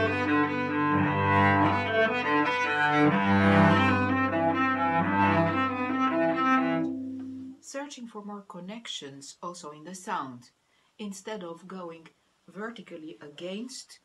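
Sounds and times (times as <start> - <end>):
bowed cello: 0.0 - 7.5.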